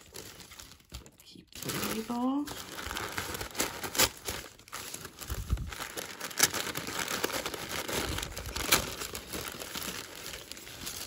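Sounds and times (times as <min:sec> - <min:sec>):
packing paper crinkling: 0:00.0 - 0:11.0.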